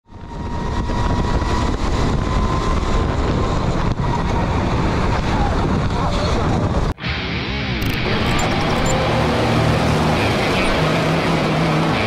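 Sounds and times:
go-kart engine rumble: 0.1s - 6.9s, 7.8s - 12.0s
wind noise: 0.1s - 7.0s.

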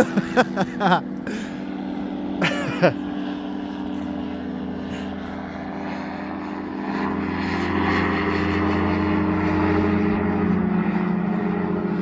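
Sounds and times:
light aircraft engine drone: 0.0s - 12.0s.

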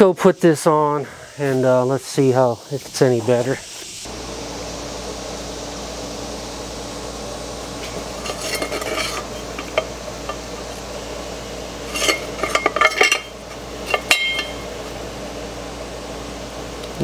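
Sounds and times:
metal plate clinking and scraping: 7.8s - 10.4s, 11.8s - 14.7s.

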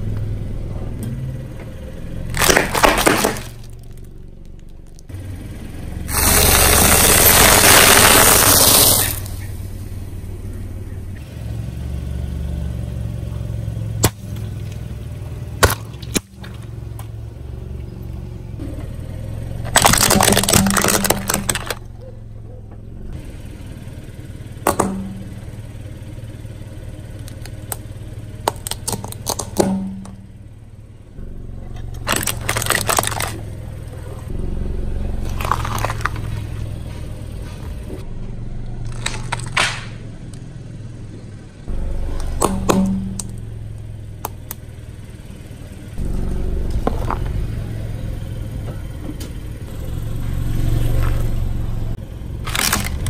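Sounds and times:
car engine running low: 0.0s - 53.0s
tyre crushing objects: 2.3s - 5.0s, 6.1s - 9.3s, 19.6s - 21.8s, 28.5s - 30.2s, 31.9s - 33.4s, 35.2s - 38.0s
plastic toy cars cracking: 2.3s - 5.1s, 6.1s - 9.4s, 19.6s - 21.9s, 28.4s - 30.1s, 31.9s - 33.5s, 35.2s - 36.6s, 38.8s - 40.0s, 52.4s - 53.0s.

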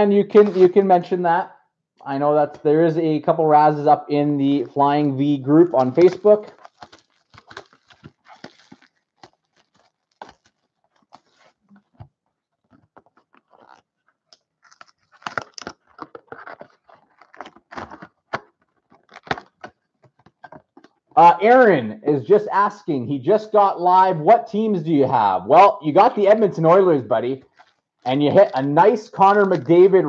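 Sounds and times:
cardboard box opening: 5.6s - 21.0s
plastic wrap crinkling and tearing: 5.6s - 21.2s, 27.4s - 30.0s.

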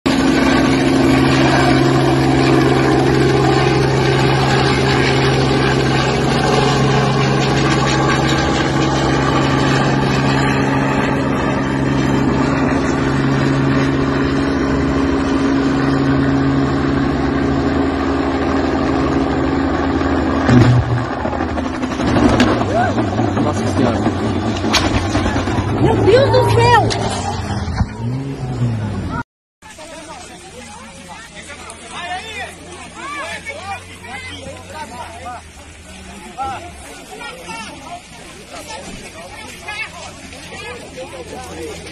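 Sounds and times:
helicopter hovering: 0.1s - 29.2s, 30.8s - 41.9s
loud crack: 20.4s - 25.8s.

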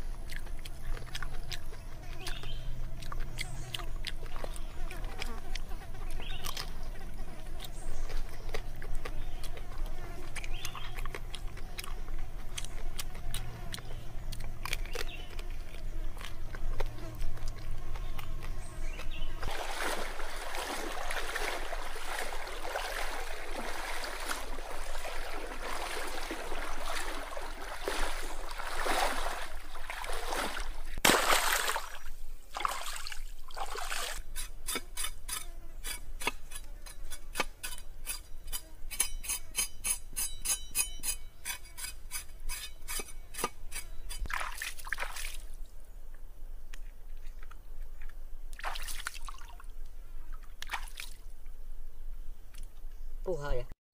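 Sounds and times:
water splashing and sloshing: 19.0s - 34.3s, 44.3s - 45.6s, 48.5s - 51.3s
loud splash: 19.4s - 34.1s.

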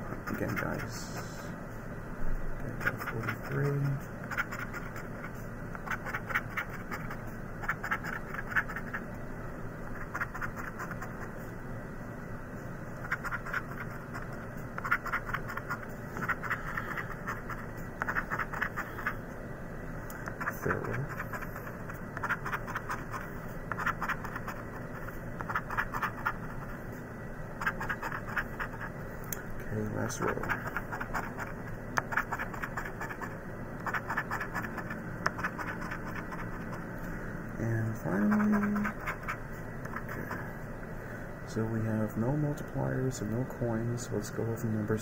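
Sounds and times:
coin scratching lottery ticket: 0.2s - 1.3s, 2.7s - 9.0s, 10.0s - 11.3s, 13.0s - 19.2s, 20.2s - 26.8s, 27.6s - 28.9s, 30.0s - 36.8s, 38.1s - 40.4s.

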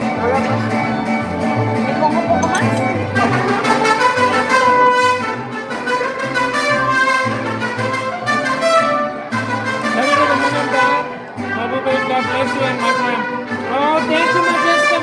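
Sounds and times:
low bass notes: 0.0s - 3.6s
trumpets playing: 2.4s - 15.0s.

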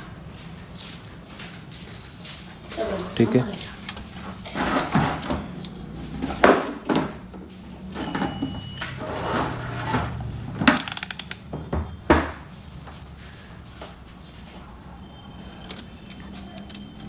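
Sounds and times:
short high beep: 8.0s - 9.0s
test probes knocking and clicking: 10.7s - 11.5s.

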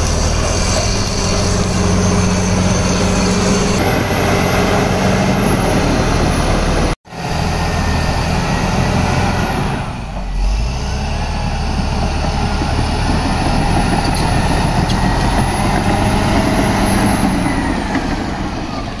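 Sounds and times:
bulldozer diesel engine under load: 0.0s - 19.0s.

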